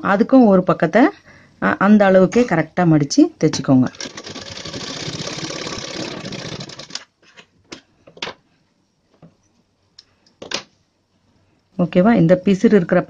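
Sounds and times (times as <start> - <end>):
sewing machine stitching: 3.9 - 7.1.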